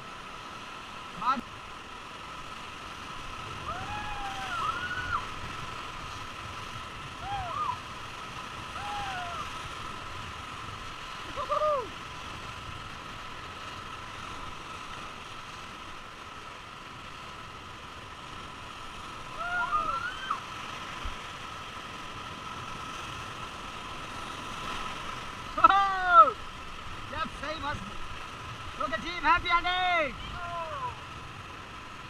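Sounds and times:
whitewater river rushing: 0:00.0 - 0:32.0
person shouting: 0:03.7 - 0:05.2, 0:07.2 - 0:07.8, 0:08.7 - 0:09.5, 0:11.4 - 0:11.9, 0:19.4 - 0:20.4, 0:25.6 - 0:26.4, 0:30.1 - 0:31.0.

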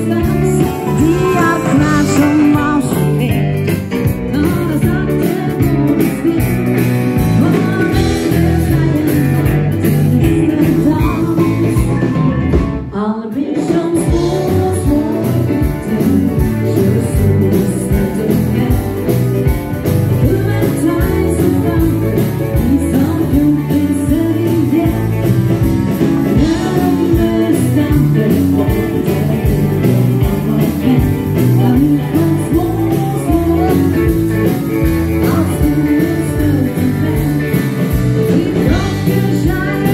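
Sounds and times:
keyboards: 0:00.0 - 0:12.9
electric guitar: 0:00.0 - 0:39.9
live dance band playing: 0:00.0 - 0:39.9.

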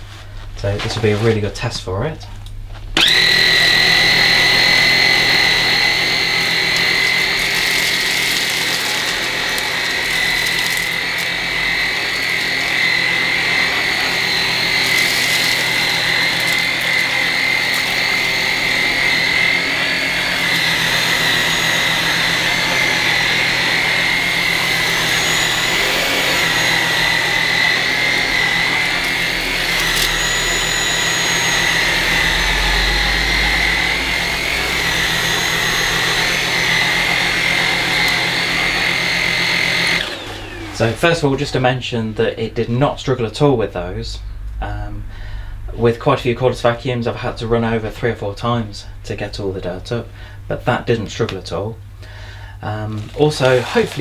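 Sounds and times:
stick vacuum running on carpet: 0:03.0 - 0:41.6, 0:52.8 - 0:54.0.

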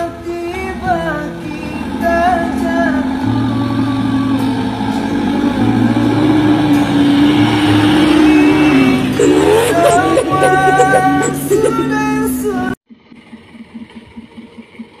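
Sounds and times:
background music with singing: 0:00.0 - 0:12.8.

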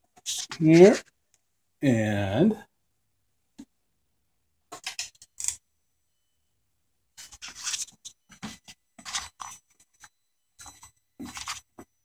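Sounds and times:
faint high-pitched electronic whine: 0:00.4 - 0:12.0
scraping and rustling: 0:07.2 - 0:11.9.

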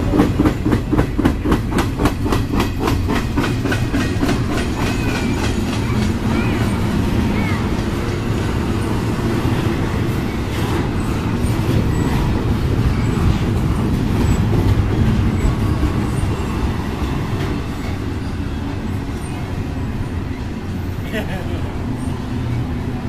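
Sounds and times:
freight train wheels rumbling: 0:00.0 - 0:23.0.

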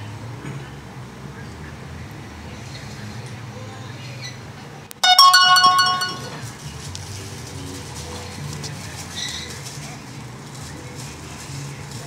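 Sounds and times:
bright pitched cartoon note: 0:05.0 - 0:06.4.

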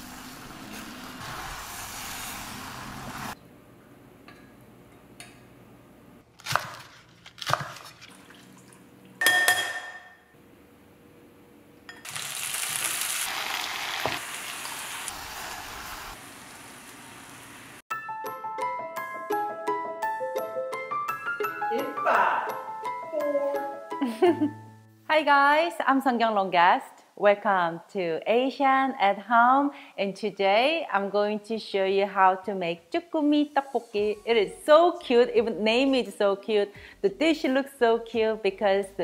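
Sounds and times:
food sizzling in a skillet: 0:00.0 - 0:03.4, 0:12.0 - 0:17.8, 0:33.1 - 0:34.6.

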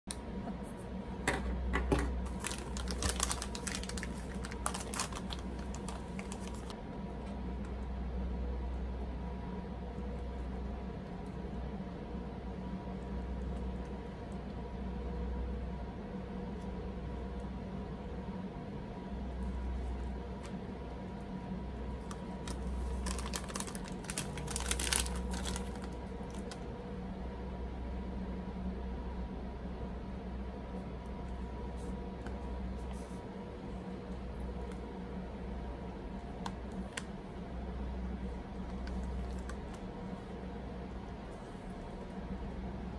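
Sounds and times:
steady low hum: 0:00.1 - 0:42.9
plastic wrapper crinkling: 0:02.2 - 0:06.8, 0:22.0 - 0:26.6.

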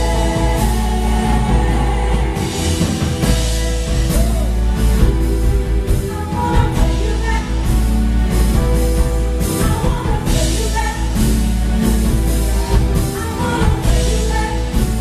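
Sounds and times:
voices singing: 0:00.0 - 0:08.1
drum kit: 0:00.0 - 0:15.0
guitar: 0:00.0 - 0:15.0
keyboard: 0:00.0 - 0:15.0.

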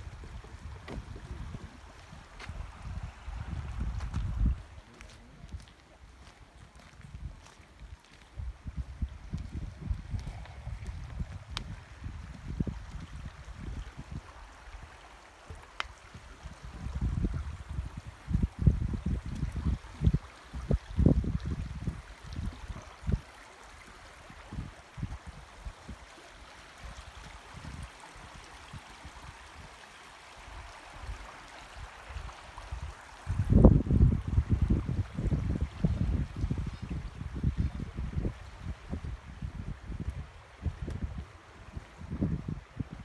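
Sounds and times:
creek flowing over rocks: 0:00.0 - 0:43.0.

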